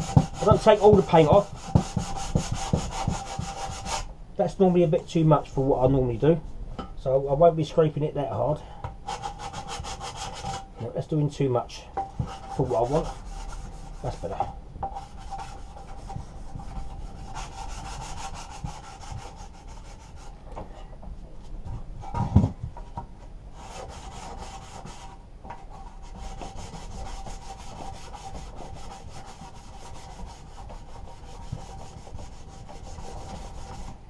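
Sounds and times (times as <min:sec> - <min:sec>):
sandpaper scraping metal: 0:00.0 - 0:04.1, 0:09.1 - 0:10.7, 0:12.2 - 0:14.4, 0:15.0 - 0:20.4, 0:25.8 - 0:34.0.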